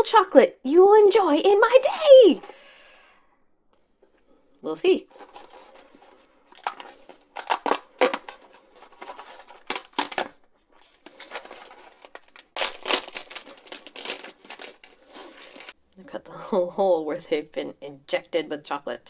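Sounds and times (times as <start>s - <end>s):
plastic pouch crinkling and tearing: 6.5s - 15.8s
cardboard box tearing: 11.2s - 15.7s.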